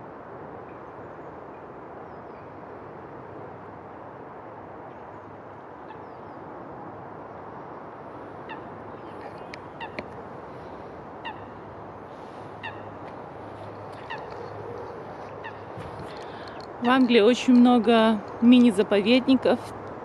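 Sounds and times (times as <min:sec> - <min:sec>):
background hiss: 0:06.8 - 0:20.0
geese honking: 0:08.5 - 0:16.4.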